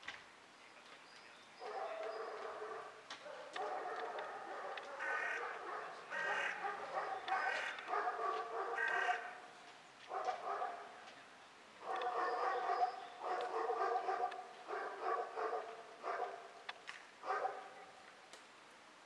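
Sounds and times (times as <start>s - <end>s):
dog barking: 1.6s - 9.4s, 10.1s - 11.0s, 11.8s - 16.6s, 17.2s - 18.0s.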